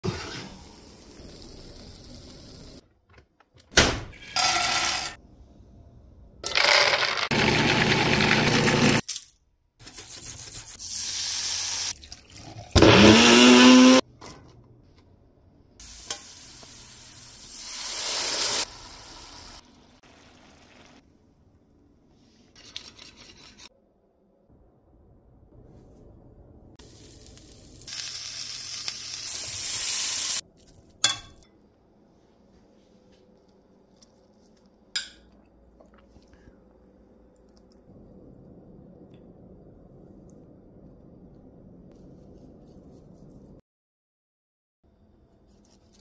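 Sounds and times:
blender motor running: 0:07.3 - 0:09.0, 0:12.8 - 0:14.0.

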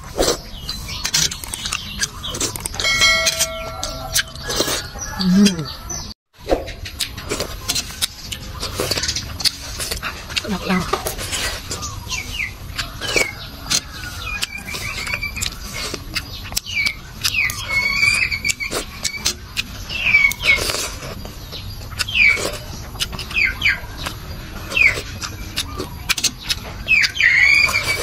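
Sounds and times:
animal chirping: 0:00.6 - 0:06.1, 0:10.4 - 0:20.7.

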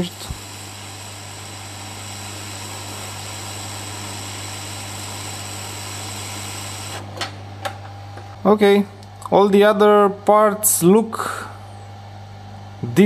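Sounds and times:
hot air blower hissing: 0:00.0 - 0:07.1.

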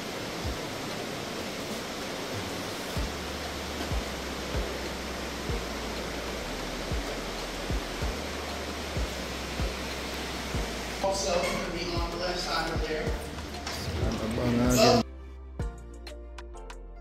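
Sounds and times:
steady rushing noise: 0:00.0 - 0:15.0
footsteps soft low thumps: 0:03.0 - 0:03.2, 0:03.8 - 0:04.8, 0:05.5 - 0:05.7, 0:07.7 - 0:08.3, 0:09.0 - 0:09.9, 0:10.5 - 0:10.8.

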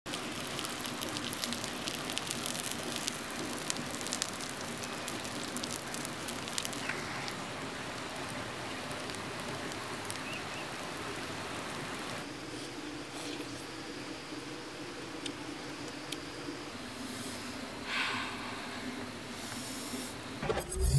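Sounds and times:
sharp crackles: 0:00.1 - 0:12.3
fish sizzling on hot stone: 0:00.1 - 0:13.8.

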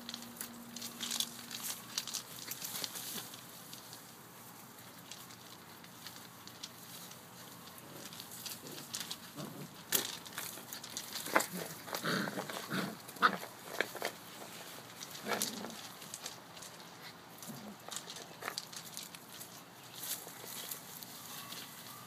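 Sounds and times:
paws scuffling in leaves and gravel: 0:00.0 - 0:22.0
puppies growling and yipping: 0:10.9 - 0:14.1.

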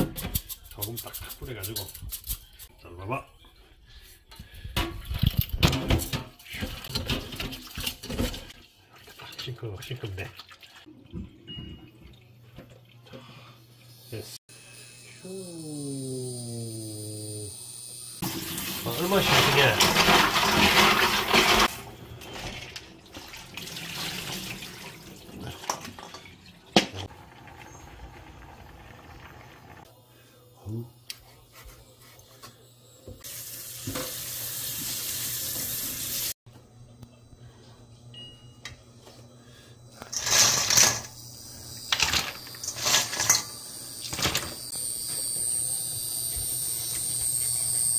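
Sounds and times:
shells rubbed in steel bowl: 0:00.3 - 0:02.8
high whine with hiss: 0:14.1 - 0:18.2
tap water running into sink: 0:18.2 - 0:21.7, 0:22.7 - 0:27.7.

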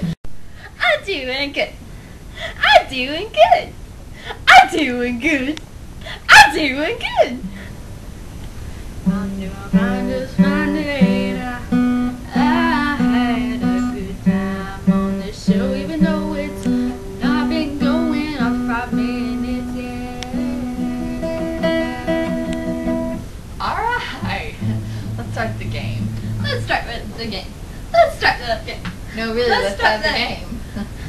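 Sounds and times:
girl singing: 0:09.0 - 0:23.0
acoustic guitar strumming: 0:09.0 - 0:27.1.

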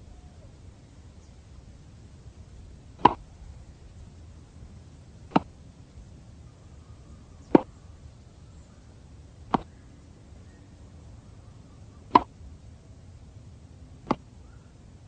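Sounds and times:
racket hitting tennis ball: 0:03.0 - 0:03.2, 0:05.3 - 0:05.5, 0:09.5 - 0:09.7, 0:12.1 - 0:12.3, 0:14.1 - 0:14.3.

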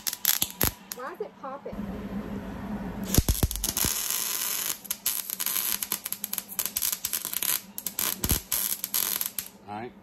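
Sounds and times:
welder crackling: 0:00.0 - 0:01.2, 0:03.0 - 0:09.6.

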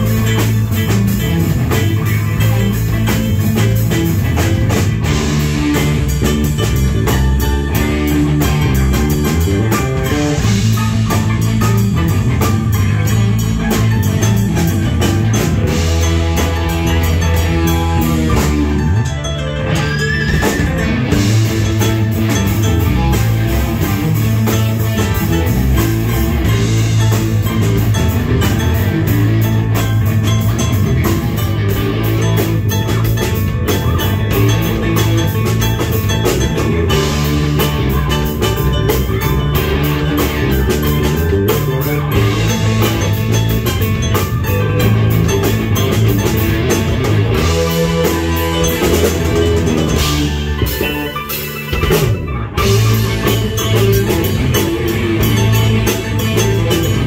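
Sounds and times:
drum kit: 0:00.0 - 0:57.0
guitar: 0:00.0 - 0:57.0
rock band playing live: 0:00.0 - 0:57.0
stage keyboard: 0:00.0 - 0:57.0.

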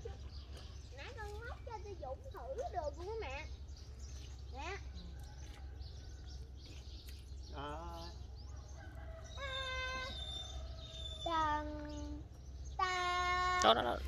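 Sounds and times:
roosters crowing: 0:08.3 - 0:11.5.

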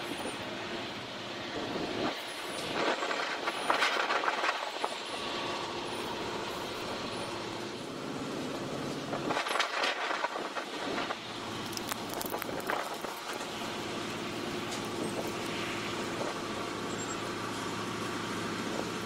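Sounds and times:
diesel locomotive engine running: 0:00.0 - 0:19.0
crackling and scraping noise: 0:01.6 - 0:07.6, 0:08.5 - 0:16.6.

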